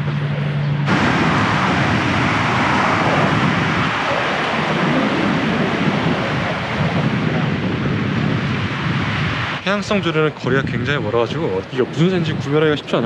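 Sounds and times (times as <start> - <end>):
wind: 0.0 - 13.0
sea surf: 0.9 - 7.7.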